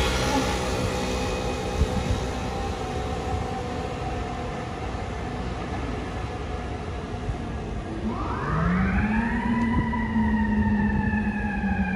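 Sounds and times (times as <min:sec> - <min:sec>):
engine and traffic rumble: 0:00.0 - 0:11.9
fire truck siren and horn: 0:00.0 - 0:11.9.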